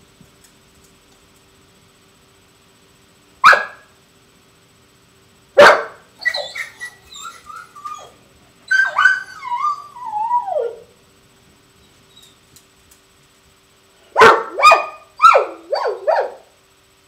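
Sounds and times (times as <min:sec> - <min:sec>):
dog barking: 0:03.4 - 0:03.9, 0:05.6 - 0:07.0, 0:14.1 - 0:16.5
dog yelping and whining: 0:06.2 - 0:10.9, 0:11.8 - 0:12.4.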